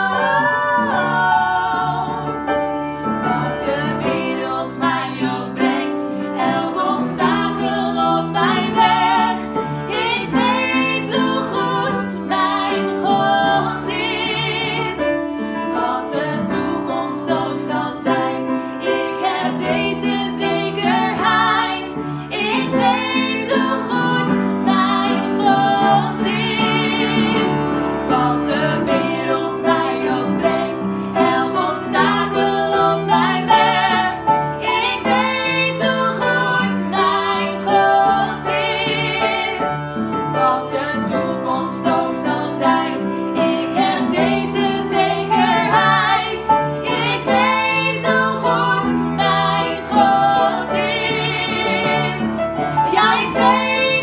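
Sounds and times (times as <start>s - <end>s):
piano: 0.0s - 54.0s
women singing with vibrato: 0.0s - 54.0s.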